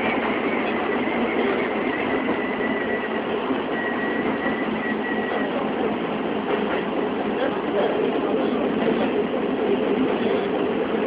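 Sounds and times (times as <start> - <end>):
train wheels rumbling: 0.0 - 11.0.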